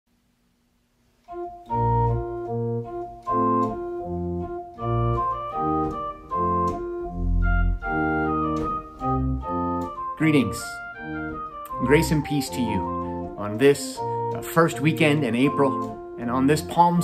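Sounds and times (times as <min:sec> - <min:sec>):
organ playing held chords: 0:01.2 - 0:17.0
deep bass notes: 0:01.7 - 0:09.9.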